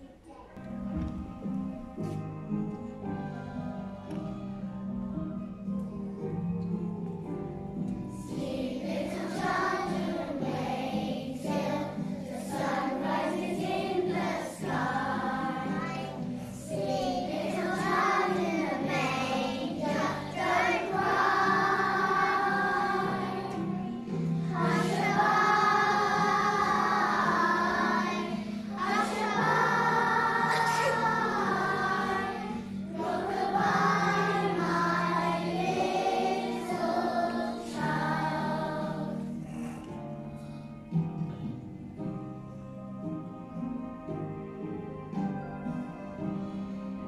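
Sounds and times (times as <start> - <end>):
children's choir singing: 0.0 - 40.4
instrumental accompaniment: 0.6 - 47.0.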